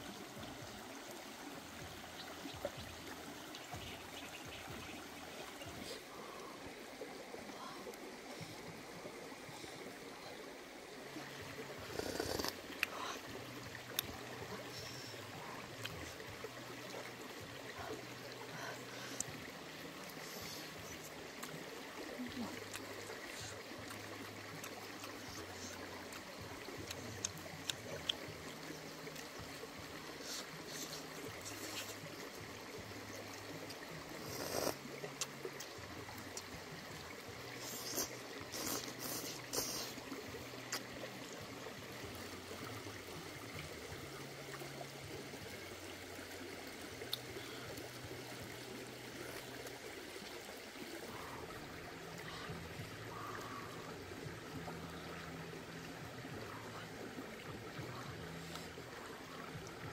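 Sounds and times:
stream running: 0.0s - 59.9s
slurping and chewing: 11.8s - 13.0s, 30.2s - 32.0s, 34.2s - 35.7s, 37.6s - 40.9s.

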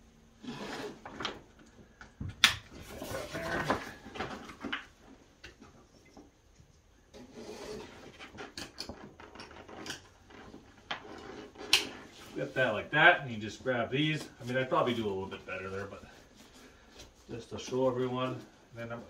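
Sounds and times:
waterproof fabric crinkling: 11.4s - 19.0s.

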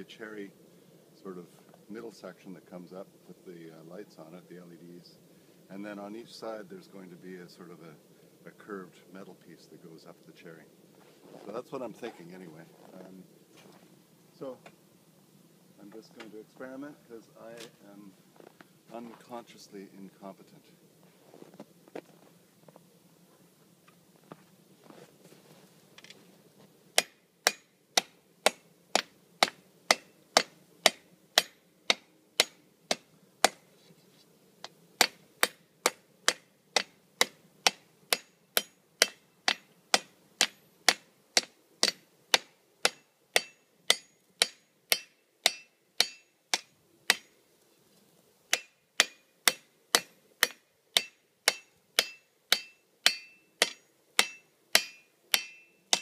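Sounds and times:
hammer striking iron on anvil: 27.0s - 33.6s, 35.0s - 47.3s, 48.5s - 56.0s.

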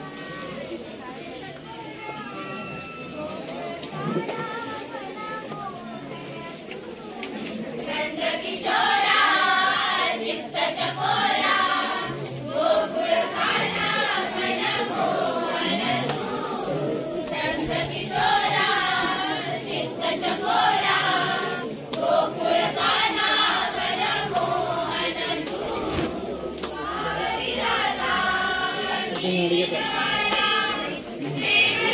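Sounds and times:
group singing in chorus: 7.8s - 31.9s.

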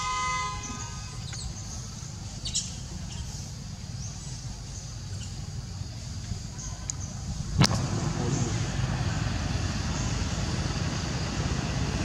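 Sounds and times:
vehicle horn tone: 0.0s - 1.3s
low rumble: 7.3s - 12.0s.

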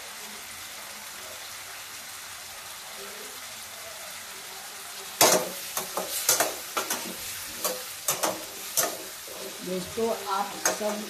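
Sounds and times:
potatoes sizzling in oil: 0.0s - 11.0s
spatula scraping a pan: 5.2s - 11.0s.

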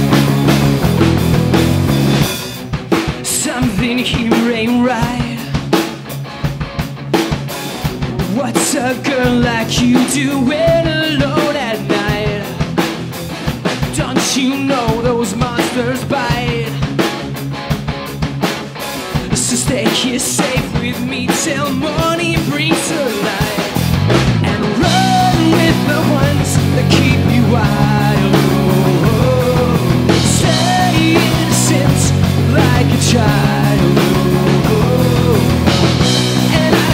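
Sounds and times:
bass guitar: 0.0s - 36.9s
drum kit: 0.0s - 36.9s
electric guitars: 0.0s - 36.9s
man singing: 3.2s - 5.8s, 8.2s - 12.8s, 13.8s - 17.0s, 19.2s - 36.9s.

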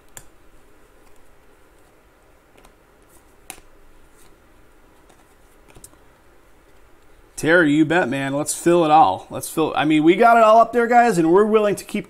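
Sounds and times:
trading cards flipped by hand: 1.0s - 6.0s.

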